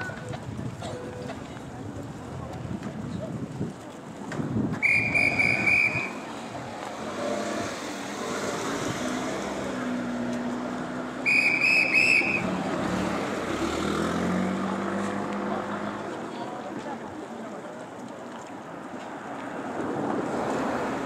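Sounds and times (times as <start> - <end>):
crowd chatter: 0.0 - 21.0
whistle trilled blasts: 4.8 - 6.2, 11.2 - 12.5.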